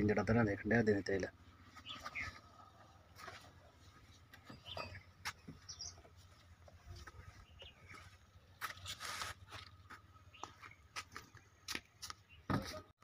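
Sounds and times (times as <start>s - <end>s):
rustling scrape: 8.7s - 9.7s.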